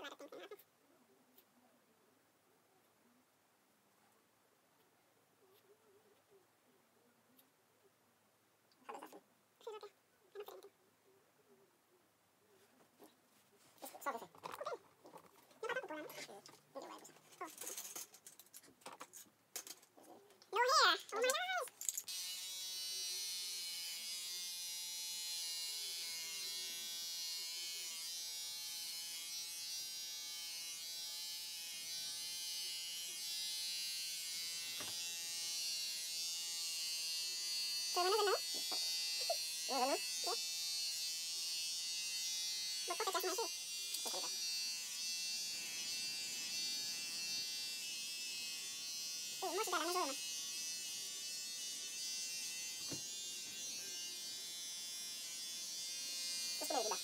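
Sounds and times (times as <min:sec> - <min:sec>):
electric hair clipper buzzing: 0:22.1 - 0:57.0.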